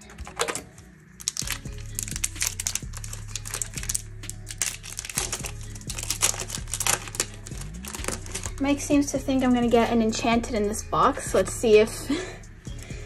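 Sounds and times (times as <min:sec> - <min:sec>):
wrapper crinkling and tearing: 0:00.0 - 0:08.6.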